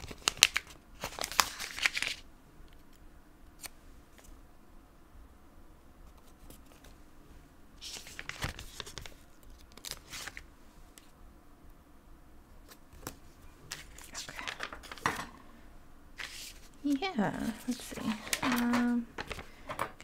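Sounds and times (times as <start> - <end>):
page turning: 0.0 - 2.2, 7.8 - 10.4, 12.7 - 15.2, 16.2 - 16.8, 17.4 - 19.5
stickers peeling and papery rustles: 0.0 - 4.4, 7.8 - 11.1, 12.6 - 15.1, 16.2 - 19.5.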